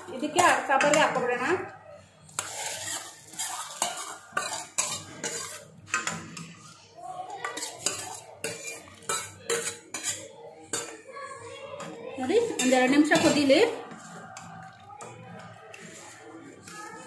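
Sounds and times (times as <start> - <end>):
metal utensil scraping steel pan: 0.2 - 1.5, 2.3 - 6.8, 7.4 - 10.9, 12.2 - 17.0
hot oil sizzling: 2.3 - 6.1.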